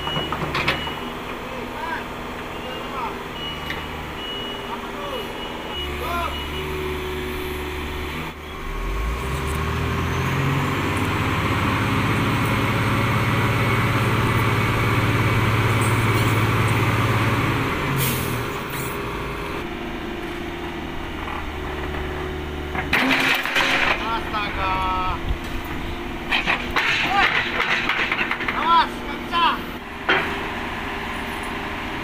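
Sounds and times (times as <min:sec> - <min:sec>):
excavator diesel engine: 0:00.0 - 0:32.0
metal knocks and clatter: 0:22.7 - 0:24.1, 0:26.3 - 0:28.8.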